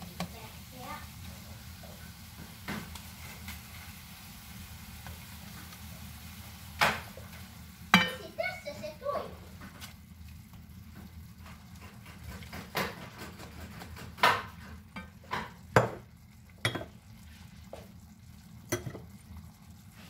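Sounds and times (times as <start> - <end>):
spatula stirring mushrooms: 0.0 - 18.2
pan sizzling: 0.0 - 20.0
liquid pouring into pan: 2.1 - 20.0
knocks against a pan: 6.8 - 7.1, 7.9 - 8.2, 12.1 - 16.9.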